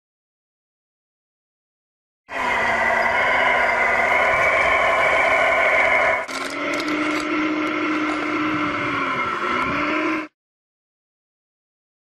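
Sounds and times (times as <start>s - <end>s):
wheel loader hydraulic whine: 2.3s - 10.4s.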